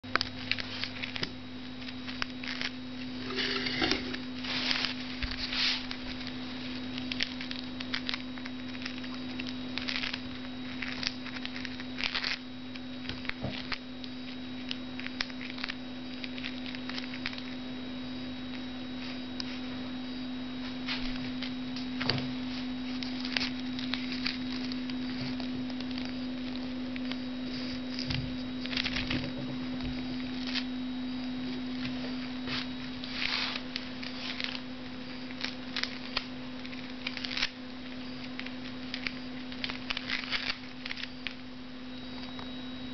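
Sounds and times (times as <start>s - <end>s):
rustles and clicks on papers: 0.0s - 3.2s, 4.1s - 17.6s, 20.6s - 41.4s
steady low hum: 0.0s - 42.9s.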